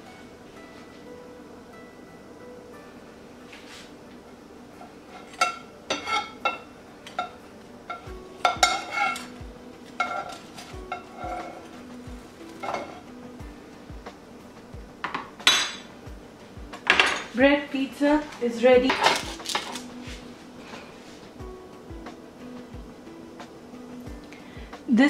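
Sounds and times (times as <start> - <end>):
utensils scraping a frying pan: 4.8 - 13.1.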